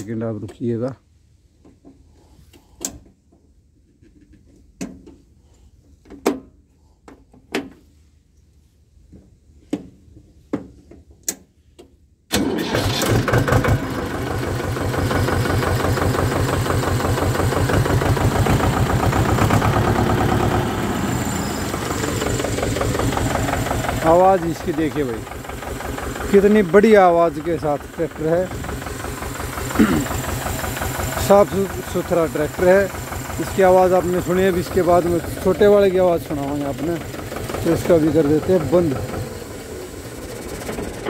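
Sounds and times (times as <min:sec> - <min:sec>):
tractor diesel engine running: 0:12.3 - 0:41.0.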